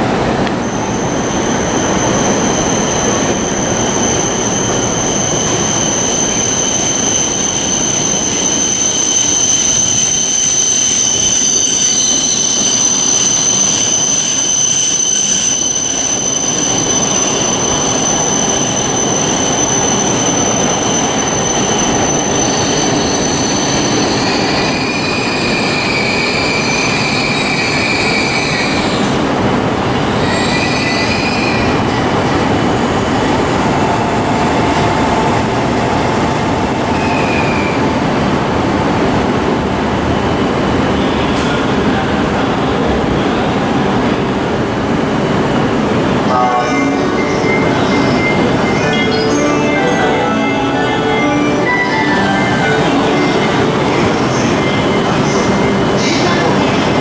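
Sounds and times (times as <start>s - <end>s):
train rumbling: 0.0s - 57.0s
train wheels squealing on rails: 0.6s - 29.3s, 29.9s - 38.1s.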